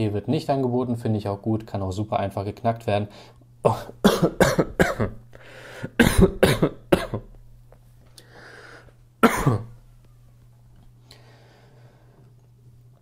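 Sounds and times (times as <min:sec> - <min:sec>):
man coughing: 0:03.7 - 0:07.4, 0:09.2 - 0:09.8
person breathing: 0:05.3 - 0:06.0, 0:08.2 - 0:09.0, 0:11.0 - 0:12.3.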